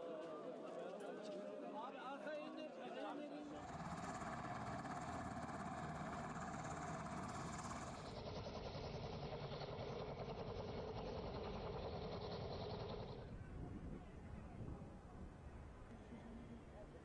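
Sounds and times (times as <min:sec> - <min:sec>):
helicopter engine and rotor drone: 0:03.5 - 0:14.6.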